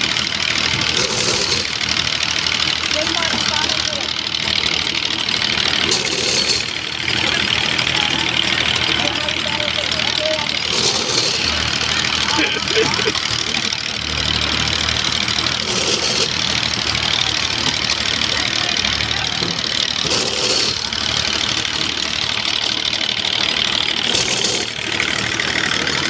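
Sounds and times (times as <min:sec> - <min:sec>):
engine running with fast beat: 0:00.0 - 0:26.0
hissing scrapes: 0:00.8 - 0:01.8, 0:05.8 - 0:06.8, 0:10.5 - 0:13.3, 0:15.5 - 0:16.6, 0:20.0 - 0:21.4, 0:24.0 - 0:25.1.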